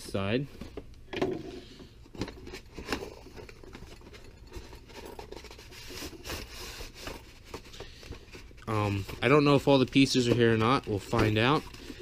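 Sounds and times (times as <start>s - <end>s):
cardboard scraping and rubbing: 4.5s - 12.0s.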